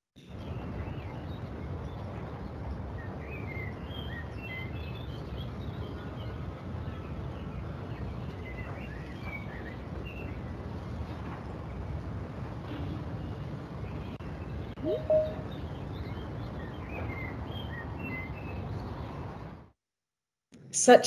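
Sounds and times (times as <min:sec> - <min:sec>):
bird chirps: 0:14.8 - 0:16.1.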